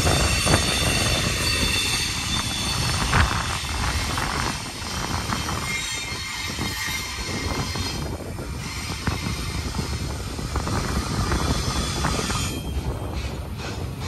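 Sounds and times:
faint high wheel squeal: 0:00.0 - 0:10.2, 0:10.9 - 0:13.9
train cars clanking: 0:00.0 - 0:14.0
train wheels rumbling on rail: 0:00.0 - 0:14.0.

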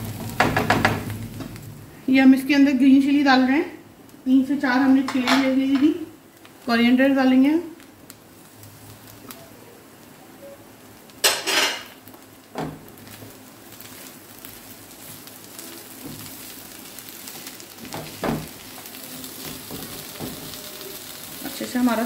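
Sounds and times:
faint sizzle: 0:00.0 - 0:22.0
spatula knocking on pan: 0:00.2 - 0:01.1, 0:19.5 - 0:20.6.

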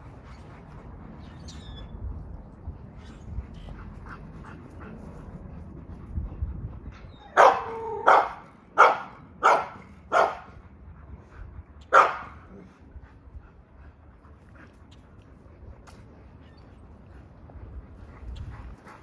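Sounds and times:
dog barking: 0:07.4 - 0:10.5, 0:11.9 - 0:12.4.

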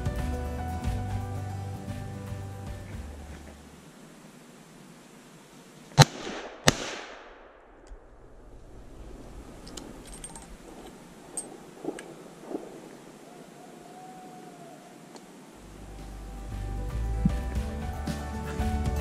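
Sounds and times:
shotgun shots with echo: 0:06.0 - 0:08.5
faint clicks: 0:09.6 - 0:12.9.

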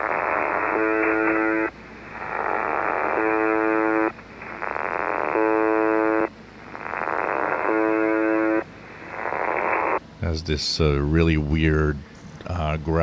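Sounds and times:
rasping radio buzzes: 0:00.0 - 0:10.0
rough radio static: 0:00.0 - 0:10.0.

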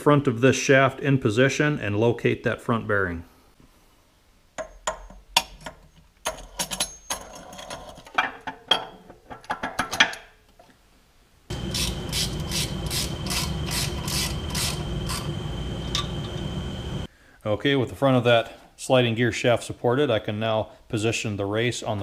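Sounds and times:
metal parts clinking: 0:04.8 - 0:08.8.

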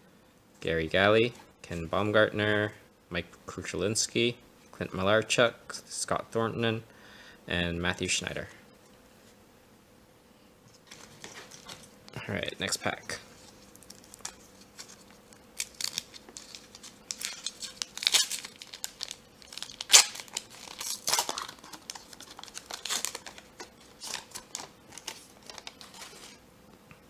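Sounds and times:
foil wrapper crinkling and tearing: 0:12.9 - 0:26.4.

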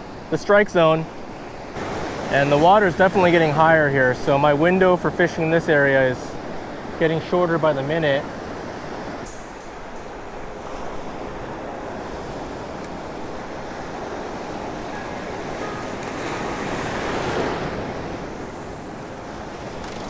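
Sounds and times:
ocean surf breaking: 0:00.0 - 0:20.0.

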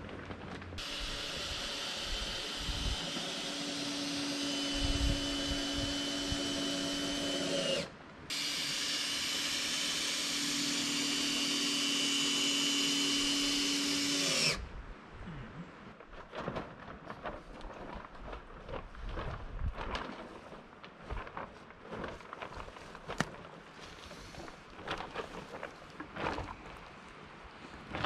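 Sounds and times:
power drill running: 0:00.8 - 0:14.6.

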